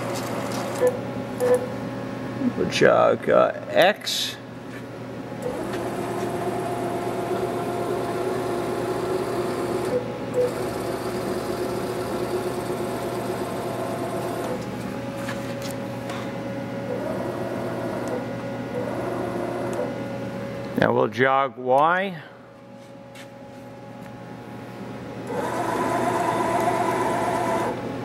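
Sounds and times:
mill motor whine: 5.4 - 16.2, 16.8 - 20.0, 25.2 - 28.0.

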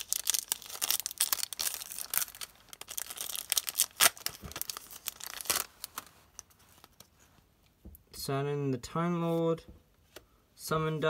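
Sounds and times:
foil wrapper tearing and crinkling: 0.0 - 6.1.

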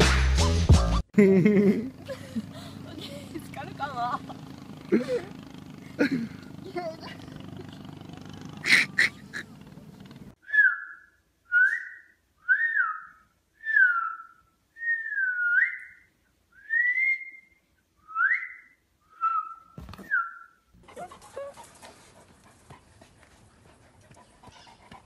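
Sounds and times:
person whistling: 10.4 - 16.0, 16.6 - 20.6.

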